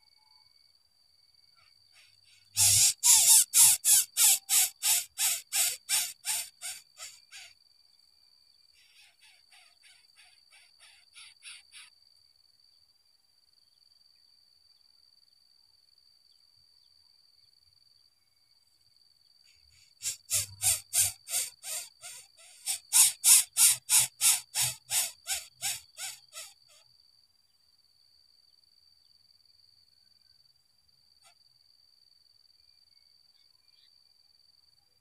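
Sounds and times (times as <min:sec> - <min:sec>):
coucal calling in quick notes: 0:02.0 - 0:07.5, 0:20.0 - 0:26.8.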